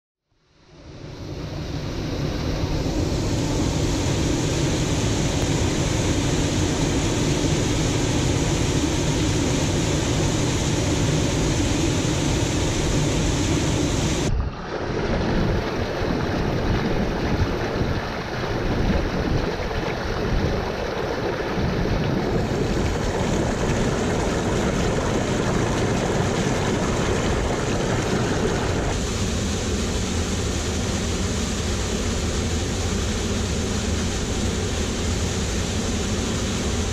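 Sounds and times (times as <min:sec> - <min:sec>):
waterfall rushing: 0:01.9 - 0:29.8.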